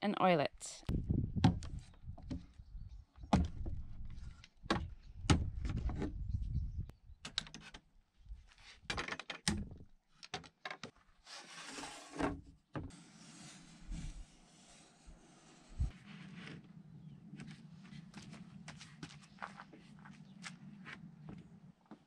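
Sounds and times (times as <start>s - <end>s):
wood scraping on wood: 11.2s - 12.3s, 12.9s - 16.7s.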